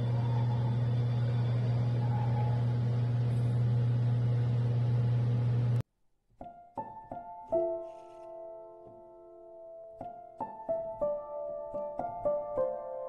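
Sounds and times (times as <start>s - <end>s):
piano tune: 0.0s - 4.1s, 6.4s - 13.0s
low mechanical hum: 0.0s - 5.8s.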